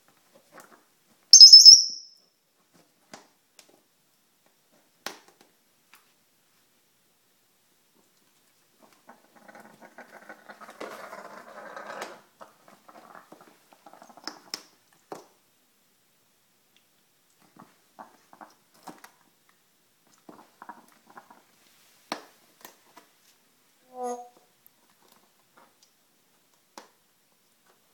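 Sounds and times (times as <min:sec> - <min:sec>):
rug dragged across tile floor: 0:10.2 - 0:12.3.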